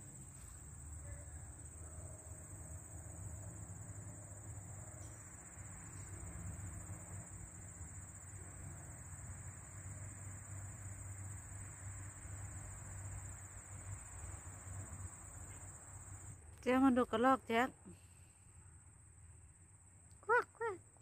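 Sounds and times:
insects trilling: 0.0 - 21.0.

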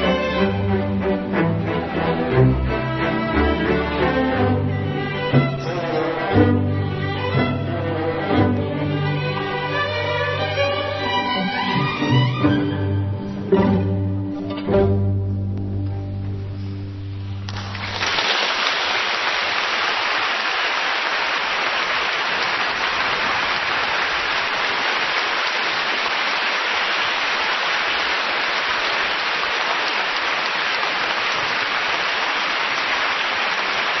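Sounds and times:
audience applauding: 17.4 - 34.0.

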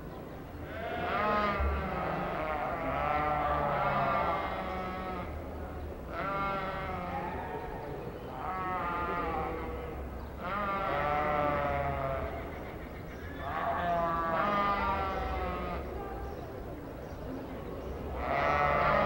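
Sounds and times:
sheep bleating: 0.7 - 5.4, 6.1 - 7.5, 8.3 - 12.3, 13.4 - 15.9, 18.2 - 19.0.

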